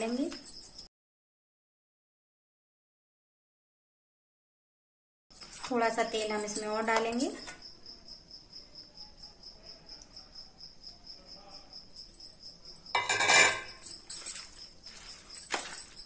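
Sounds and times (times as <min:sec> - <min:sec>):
cricket chirping: 0:00.0 - 0:00.9, 0:05.3 - 0:16.0.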